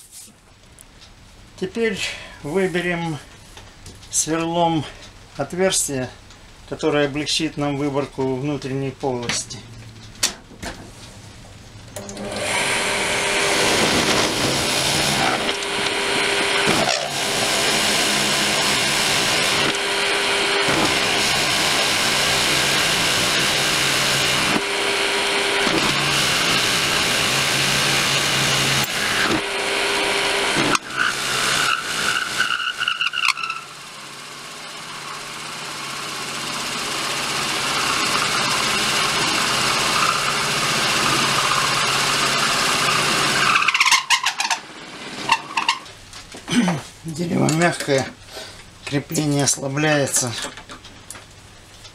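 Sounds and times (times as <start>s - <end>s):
drill boring into spinning wood: 12.0s - 45.9s.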